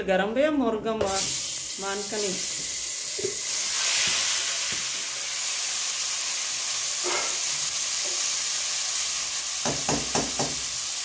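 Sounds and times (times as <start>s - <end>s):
chicken sizzling in hot oil: 1.1s - 11.0s
spoon knocking against pot: 9.6s - 10.7s.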